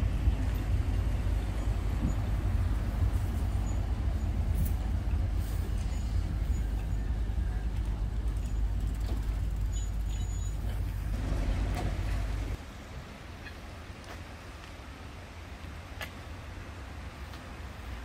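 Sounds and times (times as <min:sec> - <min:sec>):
heavy low rumble: 0:00.0 - 0:12.6
tram rolling on track: 0:00.0 - 0:18.0.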